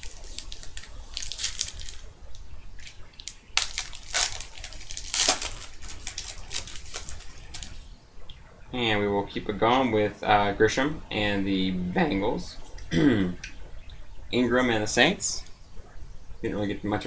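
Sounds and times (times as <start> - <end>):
foil wrapper crinkling and tearing: 0.0 - 2.1, 2.8 - 7.8.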